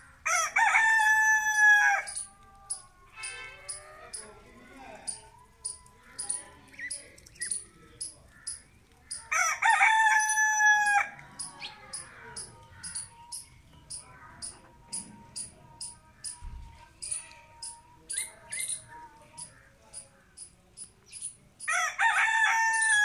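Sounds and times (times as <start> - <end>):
rooster crowing: 0.2 - 2.4, 9.3 - 11.2, 21.6 - 23.0.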